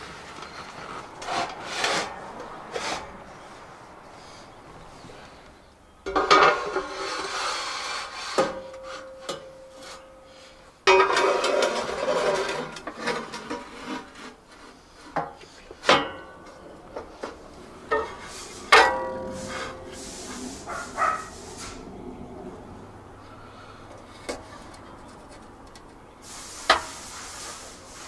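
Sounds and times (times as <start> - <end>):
metal cases scraping on steel: 0.4 - 3.2, 10.9 - 21.9.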